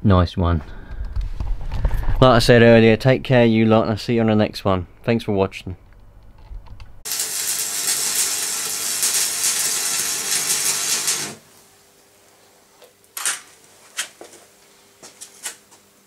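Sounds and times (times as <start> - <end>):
faint hum: 0.1 - 7.4
electric arc welder crackling: 7.0 - 11.8.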